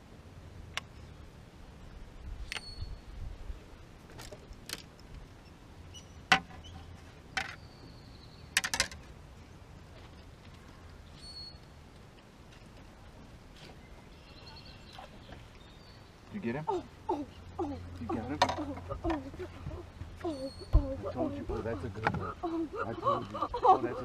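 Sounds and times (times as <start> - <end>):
fishing gear clicks and knocks: 4.1 - 5.1.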